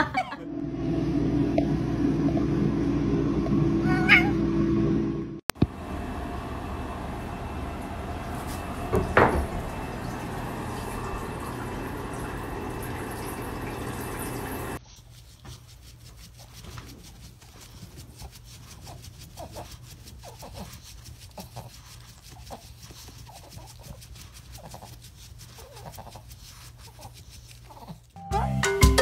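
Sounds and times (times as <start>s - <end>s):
running water: 7.0s - 14.8s.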